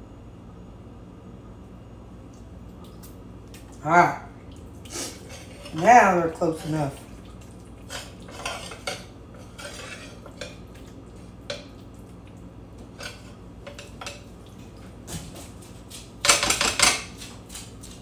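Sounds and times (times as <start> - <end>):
spatula scraping glass dish: 5.0 - 6.8, 7.9 - 10.6.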